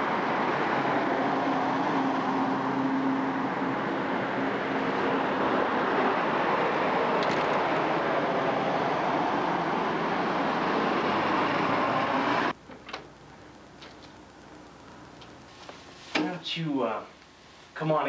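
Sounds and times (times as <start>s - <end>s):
moving vehicle rushing noise: 0.0s - 12.5s.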